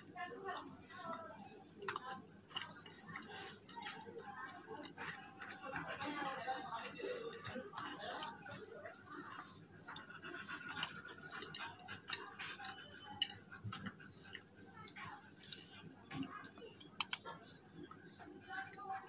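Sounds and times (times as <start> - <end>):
chewing: 0.0 - 19.0
wet clicks and smacks: 15.0 - 18.0.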